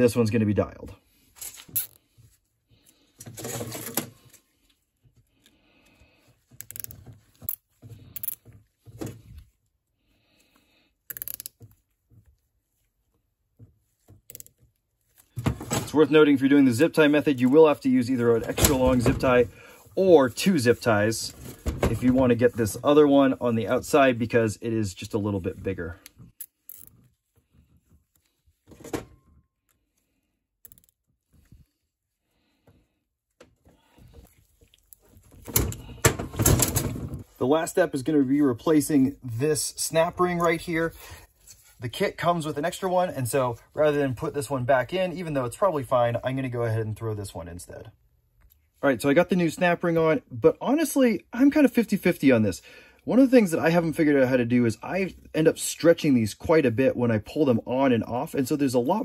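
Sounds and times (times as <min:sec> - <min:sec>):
gloved hands rustling: 0:01.0 - 0:46.5
zip ties ratcheting: 0:06.6 - 0:06.9, 0:11.1 - 0:11.6.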